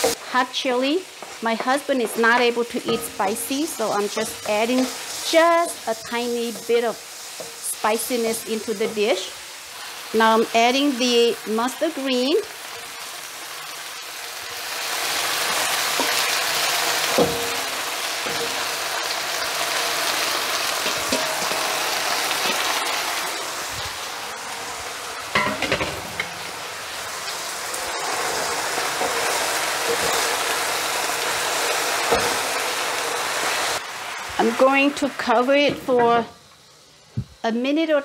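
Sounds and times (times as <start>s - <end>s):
greens sizzling in hot oil: 0.0s - 38.0s
utensils knocking against pan: 17.1s - 18.6s, 20.8s - 21.6s, 25.4s - 26.6s.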